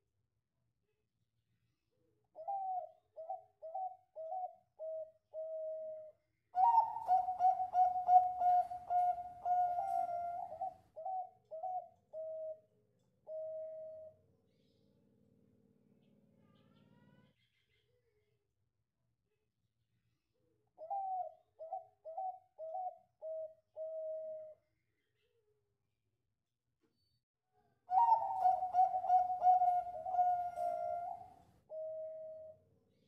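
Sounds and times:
dove cooing: 2.4 - 14.2, 20.8 - 24.6, 27.9 - 32.6.

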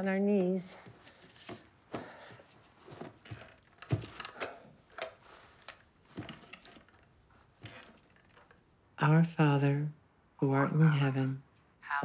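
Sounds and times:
soft knocks and rustles: 0.9 - 8.7.

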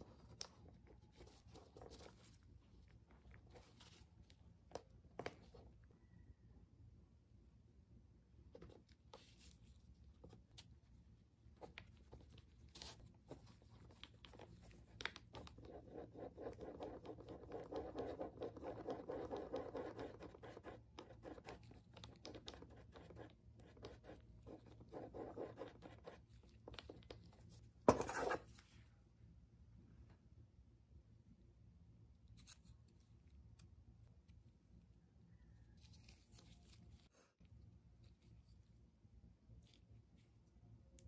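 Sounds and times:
scratching and scraping on knife: 27.9 - 28.5.

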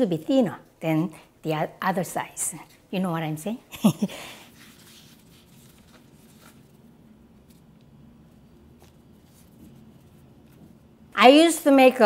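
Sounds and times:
hands rubbing dough on wood: 4.5 - 6.8, 8.7 - 11.0.

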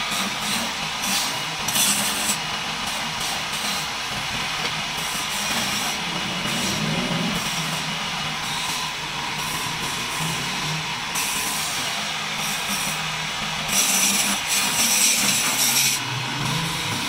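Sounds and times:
wood lathe humming: 0.0 - 17.0.

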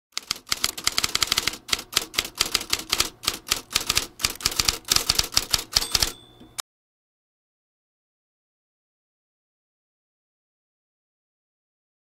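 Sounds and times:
typewriter keystrokes: 0.2 - 6.3
bell-like ding: 5.8 - 6.6.

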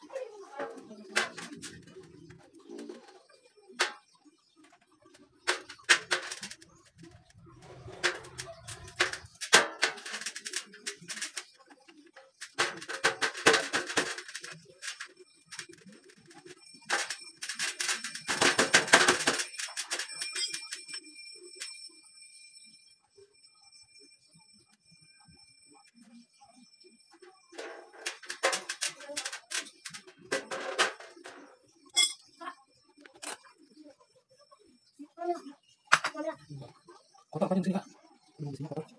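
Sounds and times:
steel profiles clicking and clattering: 0.5 - 21.0, 27.5 - 32.3
steel frame clattering: 27.6 - 32.2.

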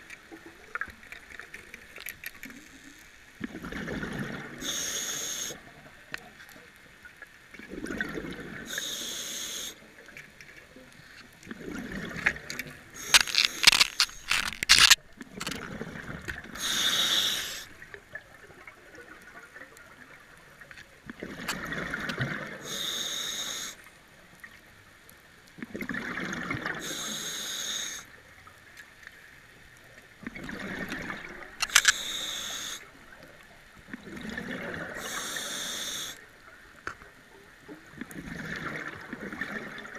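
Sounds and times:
diver breathing through regulator: 4.6 - 5.6, 8.7 - 9.8, 13.0 - 15.0, 16.6 - 17.7, 22.6 - 23.8, 26.8 - 28.1, 31.7 - 32.9, 35.0 - 36.2
sharp clicks and knocks: 13.1 - 15.6.

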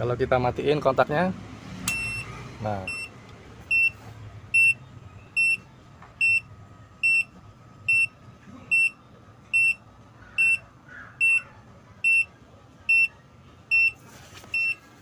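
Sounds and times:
high short beeps: 1.9 - 2.3, 4.6 - 4.8, 5.4 - 5.6, 13.7 - 14.0, 14.6 - 14.8.

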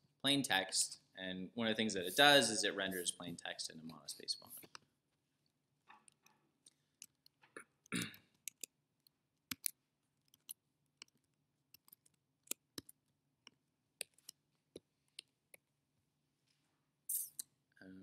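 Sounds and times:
mouse and keyboard clicks: 8.4 - 8.7, 9.5 - 15.6.

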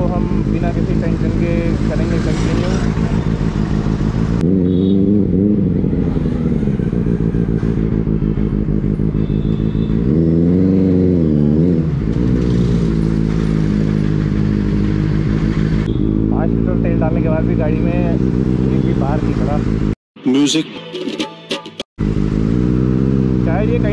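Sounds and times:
motorcycle engine revving: 0.0 - 20.0, 21.9 - 23.9.

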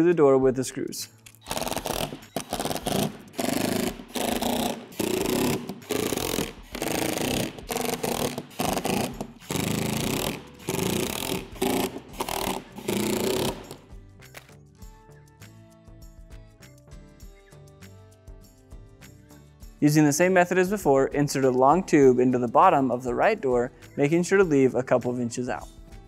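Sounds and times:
cordless drill bursts: 1.4 - 13.8.

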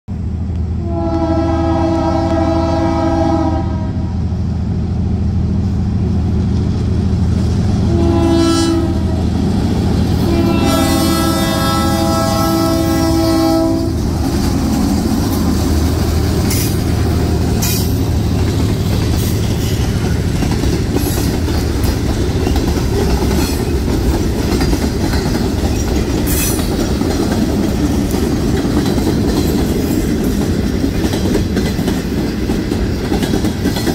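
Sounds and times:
locomotive horn blasts: 0.8 - 4.1, 7.9 - 9.2, 10.2 - 14.0
train wheels clacking on rail joints: 13.8 - 33.9.

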